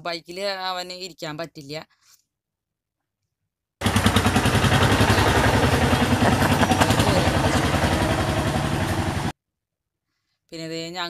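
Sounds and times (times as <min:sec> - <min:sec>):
small engine puttering: 0:03.8 - 0:09.3.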